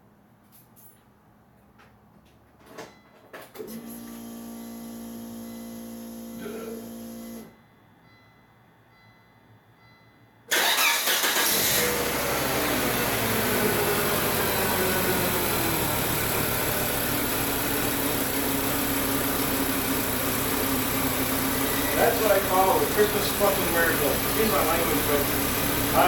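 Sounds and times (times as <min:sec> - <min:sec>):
car engine starting and idling: 0:10.5 - 0:26.0.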